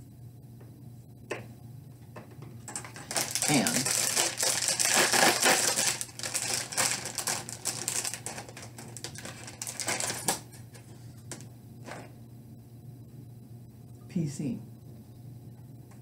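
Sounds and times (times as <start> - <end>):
plastic bag crinkling: 2.7 - 10.4.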